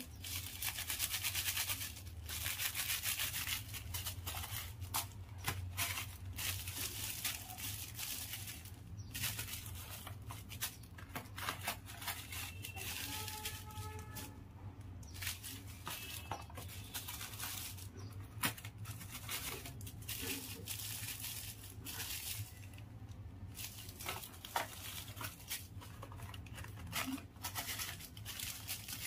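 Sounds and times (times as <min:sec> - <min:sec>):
plastic packets crinkling: 0:00.0 - 0:29.0.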